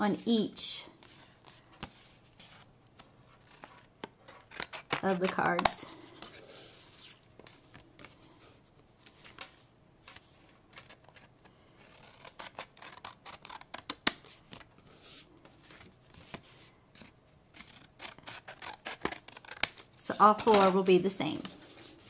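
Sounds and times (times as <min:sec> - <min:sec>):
scissors snipping cardstock: 0:04.4 - 0:05.8.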